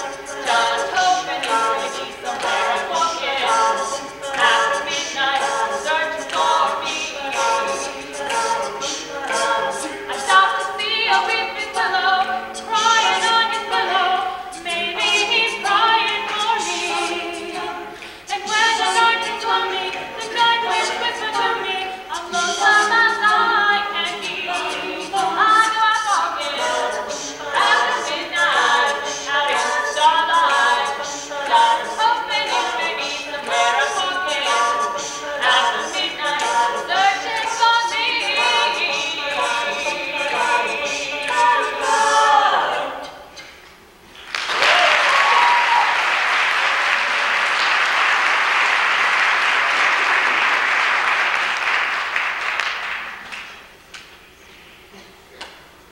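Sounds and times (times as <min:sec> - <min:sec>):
a cappella group singing: 0:00.0 - 0:43.6
audience applause: 0:44.2 - 0:53.6.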